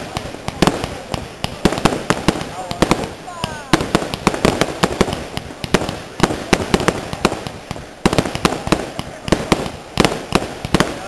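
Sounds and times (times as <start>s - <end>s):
fireworks crackling hiss: 0.0s - 11.0s
fireworks shells bursting: 0.0s - 11.0s.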